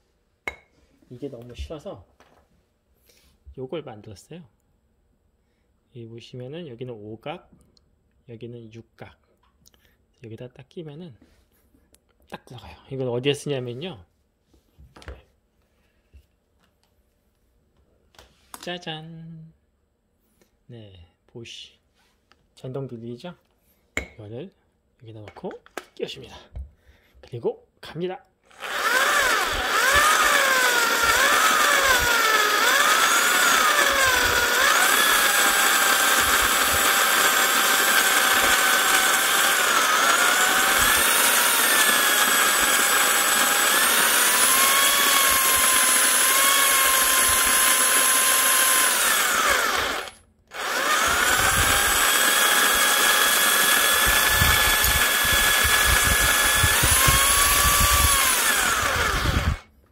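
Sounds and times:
electric drill motor whine: 0:28.5 - 0:59.7.

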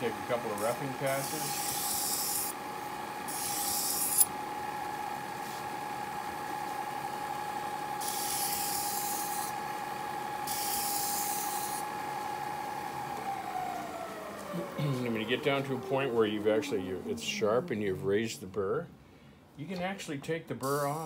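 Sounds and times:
belt grinder whining: 0:00.0 - 0:05.2, 0:06.9 - 0:17.9
knife grinding on abrasive belt: 0:00.6 - 0:02.6, 0:03.3 - 0:04.3, 0:08.0 - 0:09.6, 0:10.4 - 0:11.8.

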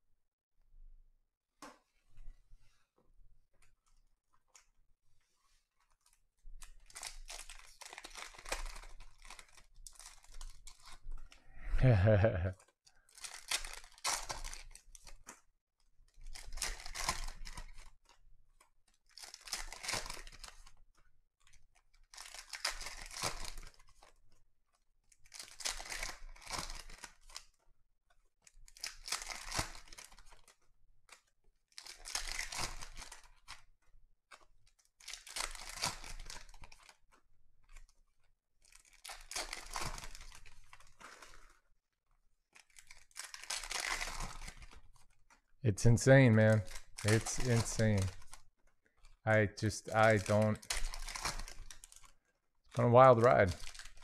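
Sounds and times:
foil wrapper tearing: 0:06.6 - 0:11.0, 0:13.1 - 0:15.3, 0:16.2 - 0:17.9, 0:19.1 - 0:20.8, 0:28.7 - 0:30.6, 0:31.7 - 0:33.6, 0:34.3 - 0:37.0, 0:38.6 - 0:41.6, 0:42.5 - 0:45.3, 0:46.0 - 0:48.4, 0:49.0 - 0:52.2, 0:53.0 - 0:54.0.

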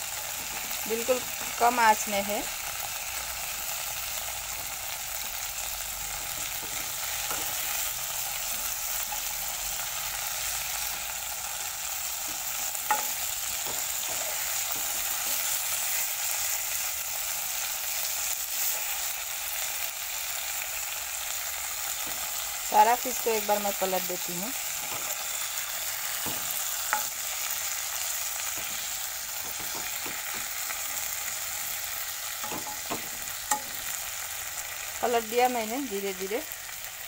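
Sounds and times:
fish frying in oil: 0:00.0 - 0:37.0
steel spoon knocking and scraping pan: 0:06.4 - 0:07.6, 0:12.2 - 0:15.6, 0:24.8 - 0:25.3, 0:26.0 - 0:27.4, 0:28.4 - 0:30.9, 0:32.4 - 0:33.9.

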